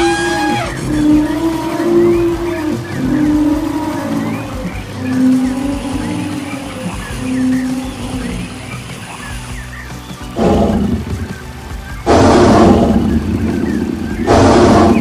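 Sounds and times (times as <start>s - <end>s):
animal roars: 0.0s - 8.4s, 10.4s - 11.2s
steady low rumble: 0.0s - 9.8s, 10.4s - 15.0s
music: 0.0s - 15.0s.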